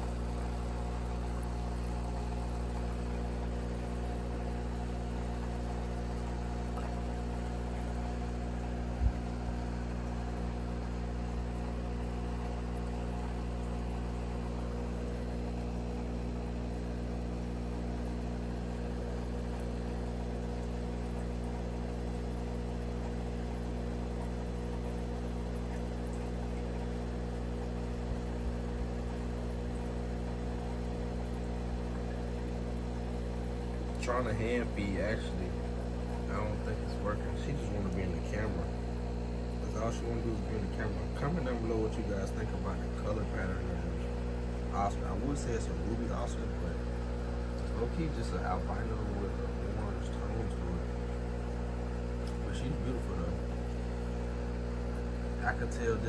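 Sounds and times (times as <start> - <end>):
aquarium pump and filter hum: 0.0 - 56.0.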